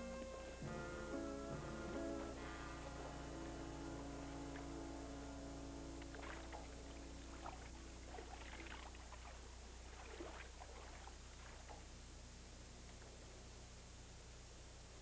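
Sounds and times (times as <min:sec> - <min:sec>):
held music chord: 0:00.0 - 0:08.0
faint steady low hum: 0:00.0 - 0:15.0
water splashing and sloshing: 0:06.0 - 0:11.9.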